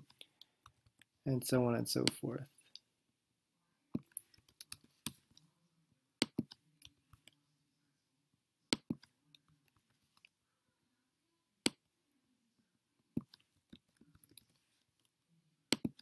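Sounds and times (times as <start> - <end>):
computer mouse clicks: 4.0 - 5.4.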